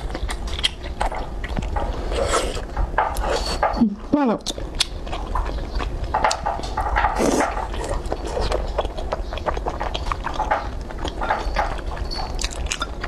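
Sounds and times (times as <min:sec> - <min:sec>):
slurping: 0:00.0 - 0:03.7, 0:04.5 - 0:13.0
wet chewing sounds: 0:00.0 - 0:13.0.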